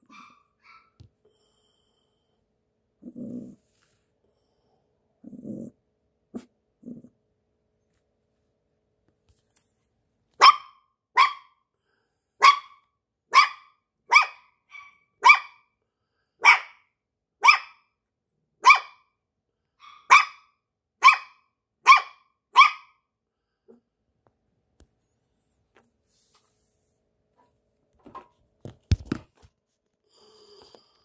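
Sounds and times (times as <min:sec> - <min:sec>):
puppy barking: 0:00.0 - 0:01.1, 0:10.4 - 0:11.6, 0:12.4 - 0:15.7, 0:16.4 - 0:17.9, 0:18.6 - 0:19.1, 0:19.8 - 0:23.0.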